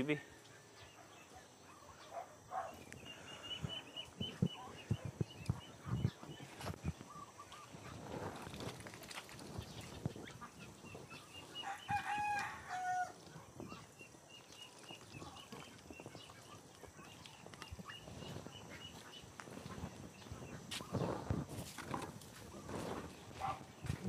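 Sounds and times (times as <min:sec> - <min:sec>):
rooster crowing: 0:11.6 - 0:13.2.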